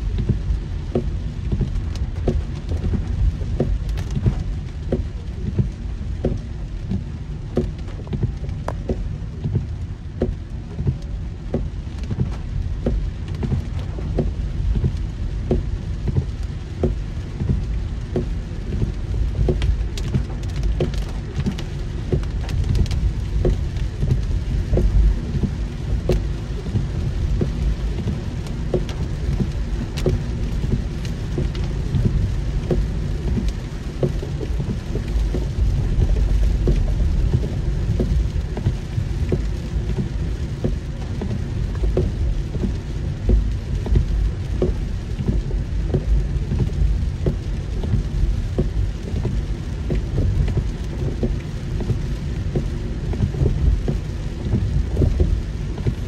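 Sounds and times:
heavy rain on a car: 0.0s - 56.0s
raindrops ticking: 0.0s - 56.0s
steady low rumble: 0.0s - 56.0s.

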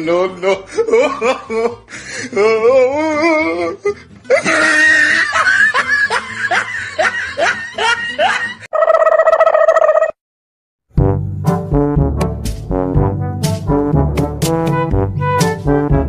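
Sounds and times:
person laughing: 0.3s - 8.9s
comic music: 11.0s - 16.0s.

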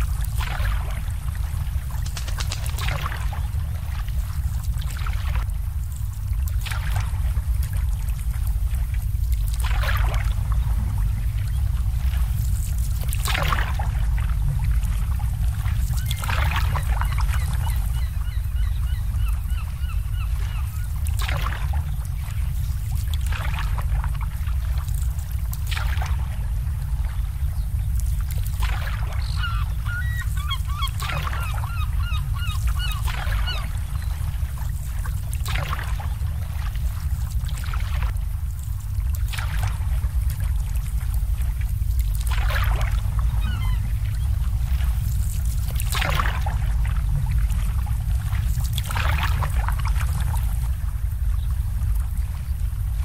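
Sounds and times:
water slapping against boats: 0.0s - 18.8s, 19.4s - 53.0s
low rumble: 0.0s - 53.0s
bird calling: 16.0s - 21.0s, 29.1s - 34.2s, 43.3s - 44.3s.

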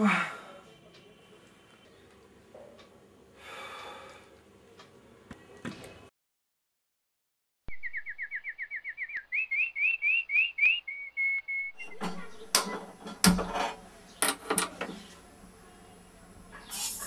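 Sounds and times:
bird singing: 7.7s - 12.8s
gas burner hiss: 16.6s - 17.0s.

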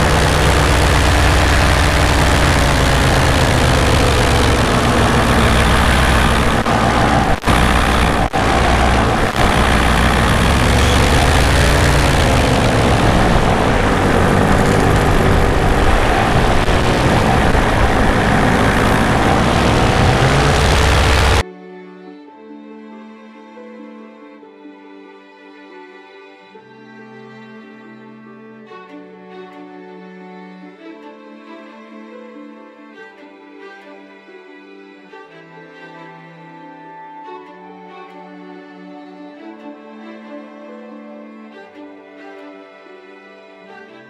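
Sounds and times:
paramotor engine and propeller: 0.0s - 21.4s
wind rushing over microphone: 0.0s - 21.4s.

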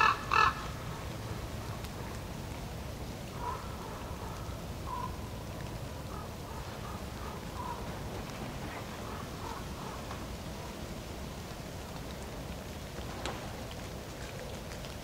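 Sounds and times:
faint short bird calls: 3.4s - 5.2s.

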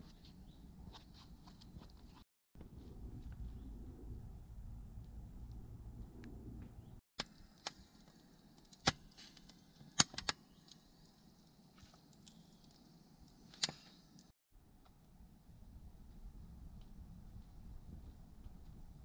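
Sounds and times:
twig fire crackling: 7.2s - 14.3s.

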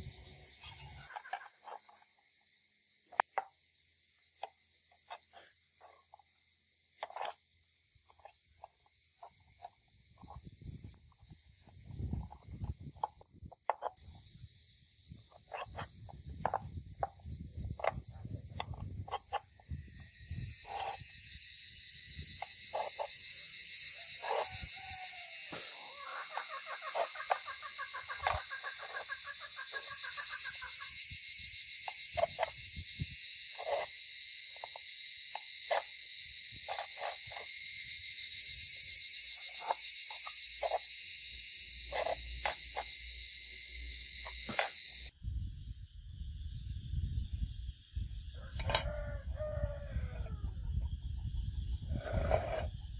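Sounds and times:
insect chorus with pulsing trill: 0.0s - 52.9s.

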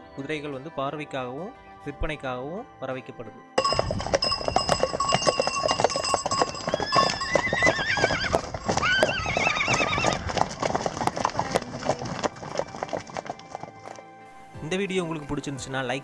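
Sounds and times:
horse whinnying: 3.6s - 13.7s
horse hoofbeats on wet dirt: 3.6s - 15.4s.

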